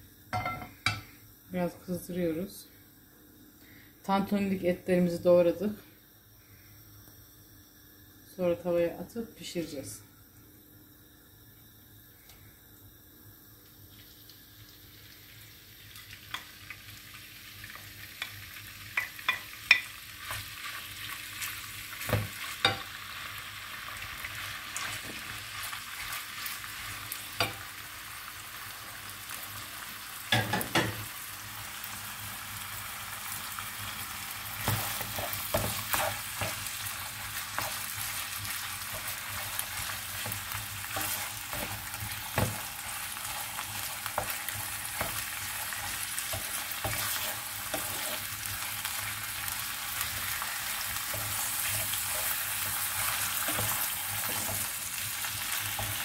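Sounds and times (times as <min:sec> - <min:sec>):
meat sizzling in a frying pan: 0:13.6 - 0:56.0
wooden spoon scraping a pan: 0:38.9 - 0:42.7, 0:45.8 - 0:48.4.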